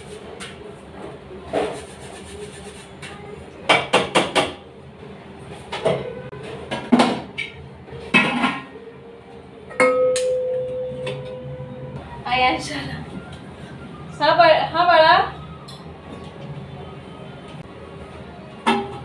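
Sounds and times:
metal vessels clinking: 9.7s - 11.5s.

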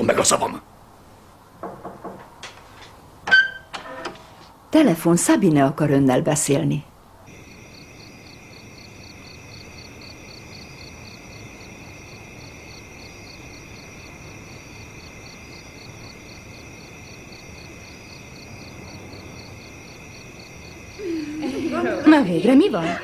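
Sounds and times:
crickets chirping: 7.0s - 23.0s.

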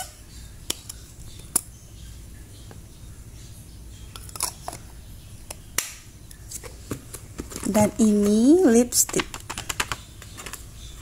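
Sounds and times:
faint room hum: 0.0s - 11.0s
plastic rustling: 6.5s - 10.8s
plastic packaging clicks: 9.0s - 10.6s.

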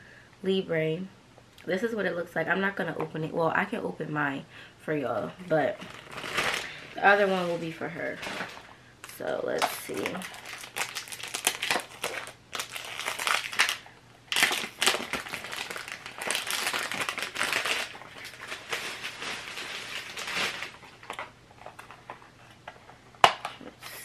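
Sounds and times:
cellophane crinkling: 5.5s - 22.9s.

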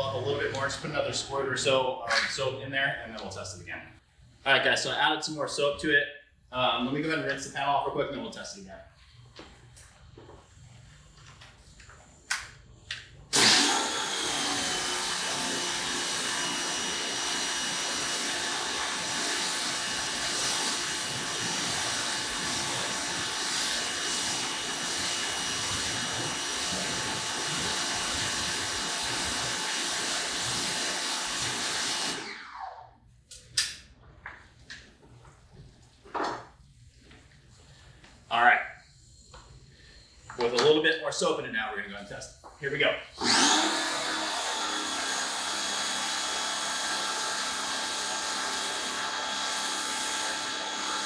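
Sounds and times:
pump motor hum: 13.3s - 32.7s, 43.2s - 51.0s.

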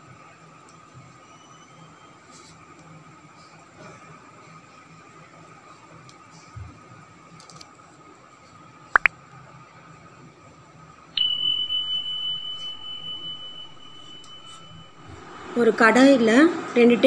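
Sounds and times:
bell ding: 11.2s - 15.2s
faint room hiss: 11.2s - 17.0s.

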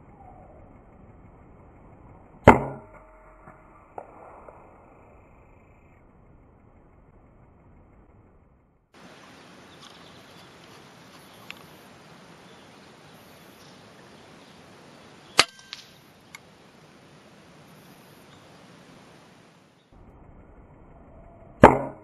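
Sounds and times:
background hiss: 0.0s - 21.6s
faint clicks: 9.8s - 11.8s
air rifle shot: 15.4s - 16.0s.

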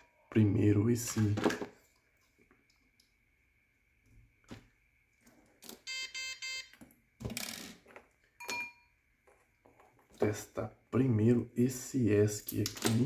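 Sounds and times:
short electronic beeps: 5.9s - 6.7s.

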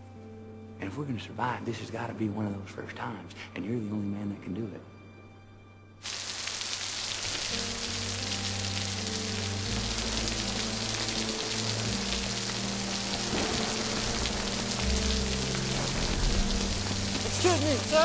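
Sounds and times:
film score held notes: 0.0s - 18.0s
heavy rain falling: 6.0s - 18.0s.

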